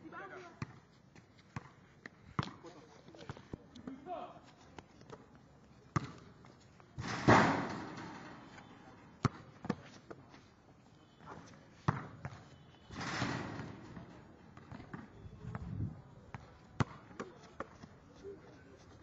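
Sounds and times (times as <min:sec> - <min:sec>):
basketball bouncing: 0:06.0 - 0:06.2, 0:11.9 - 0:15.7, 0:16.3 - 0:17.7
ball crashing on rim and backboard: 0:07.0 - 0:08.4, 0:12.9 - 0:15.0.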